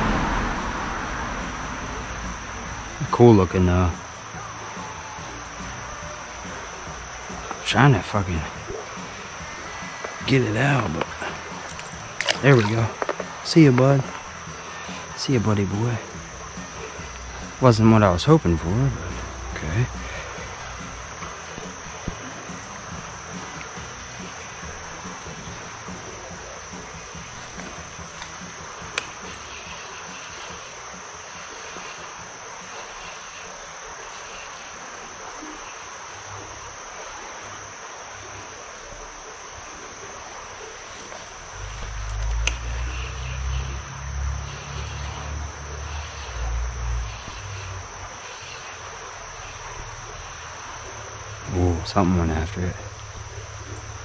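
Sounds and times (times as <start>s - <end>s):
low rumbling: 0.0s - 14.7s
faint hiss: 0.0s - 54.0s
insects trilling: 0.0s - 54.0s.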